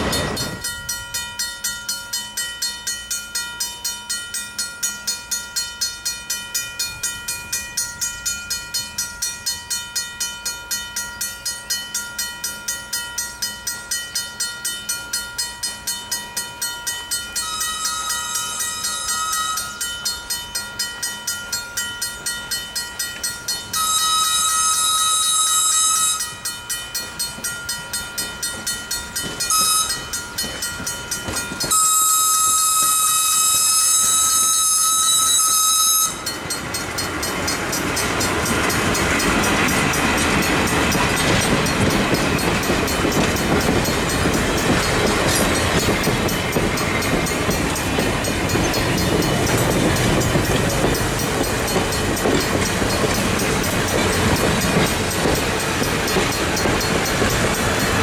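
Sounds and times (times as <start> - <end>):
train wheels rumbling on rail: 0.0 - 58.0
steam locomotive whistle: 17.3 - 20.0, 23.7 - 26.5, 29.4 - 30.2, 31.7 - 36.4.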